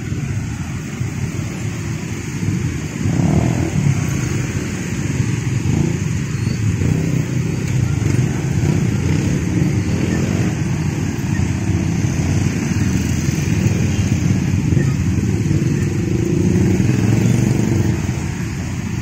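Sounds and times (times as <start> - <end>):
motorcycle engines running: 0.0 - 19.0.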